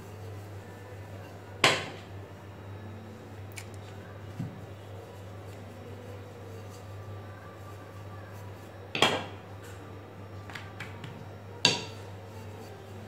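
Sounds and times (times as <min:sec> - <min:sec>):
rolling pin knocking on countertop: 0:09.0 - 0:09.4, 0:10.5 - 0:12.0.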